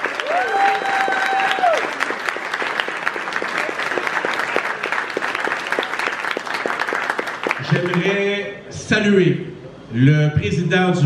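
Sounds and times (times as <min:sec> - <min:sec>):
crowd applauding: 0:00.0 - 0:08.3
person cheering: 0:00.1 - 0:02.1.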